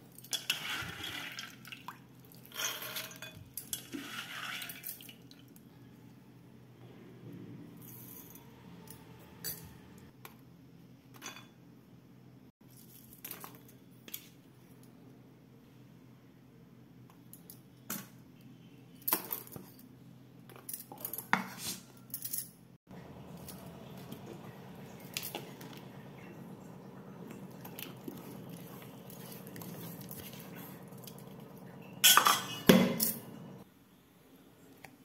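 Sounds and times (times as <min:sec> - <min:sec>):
steady low hum: 0:22.9 - 0:33.6
utensils scraping bowls: 0:23.1 - 0:33.6.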